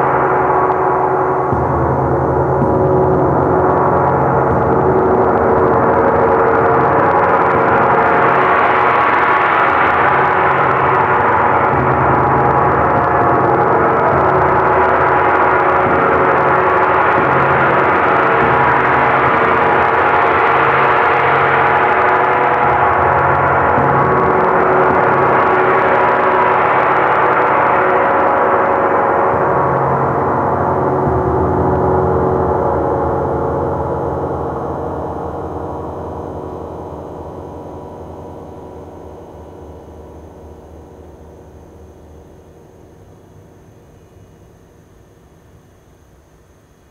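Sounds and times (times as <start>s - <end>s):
gong played with soft mallet: 0.0s - 9.1s.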